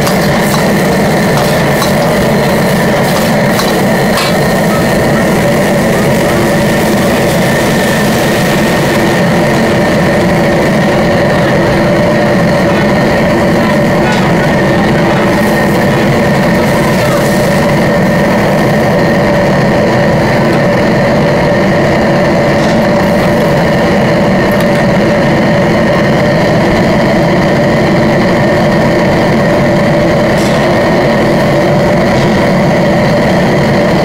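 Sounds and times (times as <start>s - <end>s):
liquid hissing in hot wok: 0.0s - 9.8s
gas burner roaring: 0.0s - 34.0s.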